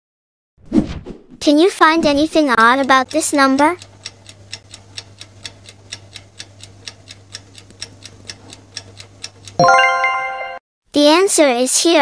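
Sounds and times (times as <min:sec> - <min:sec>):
clock ticking fast: 0:02.3 - 0:09.6.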